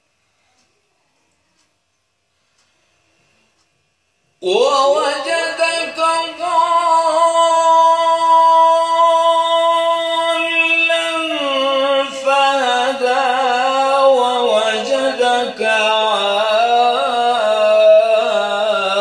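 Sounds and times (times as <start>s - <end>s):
man reciting melodically: 4.4s - 19.0s.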